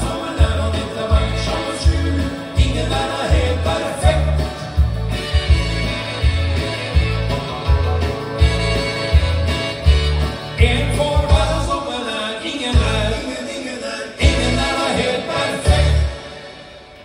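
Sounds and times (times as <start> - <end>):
person singing into microphone: 0.0 - 4.9, 10.6 - 16.3
backing track with bass beat: 0.0 - 11.7, 12.7 - 13.2, 14.2 - 14.9, 15.6 - 16.1.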